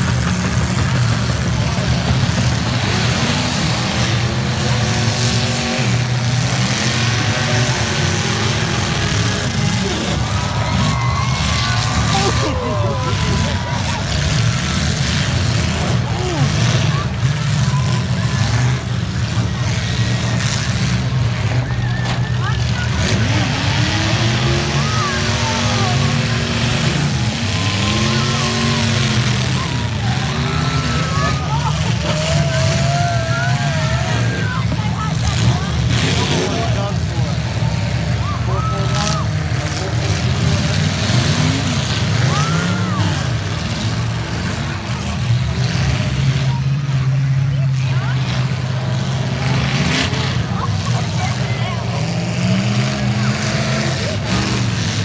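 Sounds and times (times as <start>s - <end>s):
car engines revving: 0.0s - 55.0s
din of several engines: 0.0s - 55.0s.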